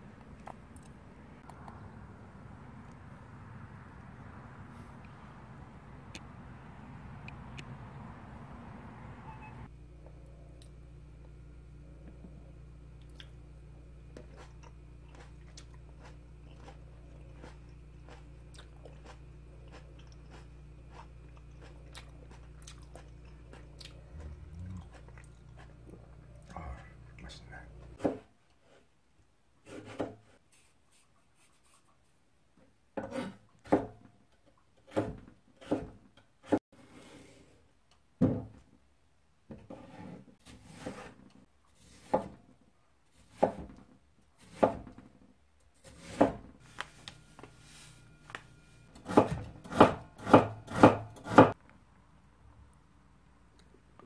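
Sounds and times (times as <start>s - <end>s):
knife chopping on wooden board: 43.3s - 43.8s, 45.9s - 46.4s, 49.0s - 51.6s.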